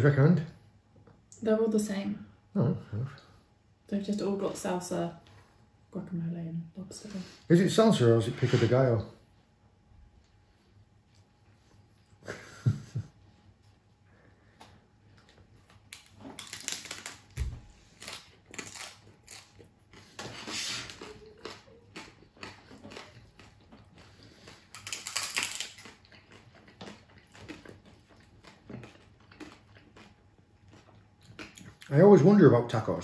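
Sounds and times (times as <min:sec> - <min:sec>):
taco shells crunching: 0:15.1 - 0:32.0.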